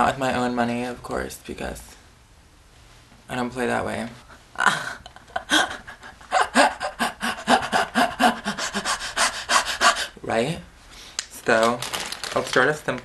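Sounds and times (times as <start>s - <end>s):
person laughing hard: 4.6s - 10.1s.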